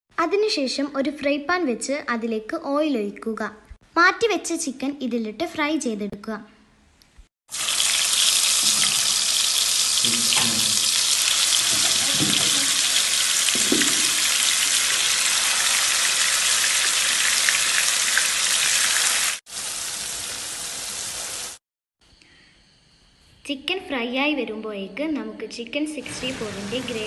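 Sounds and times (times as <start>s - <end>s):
chicken sizzling in hot oil: 7.5s - 21.6s.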